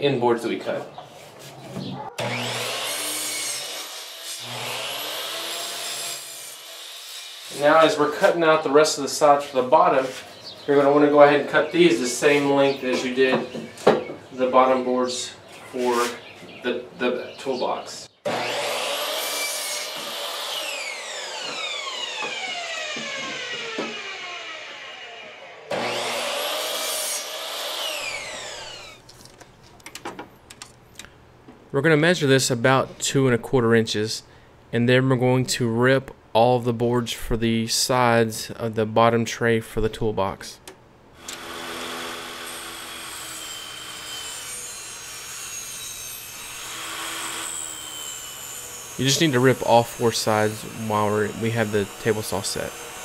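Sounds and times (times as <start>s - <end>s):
miter saw motor whining: 2.2s - 6.8s, 18.3s - 29.0s, 41.2s - 53.0s
saw blade cutting wood: 2.2s - 8.4s, 18.3s - 29.0s, 41.2s - 53.0s.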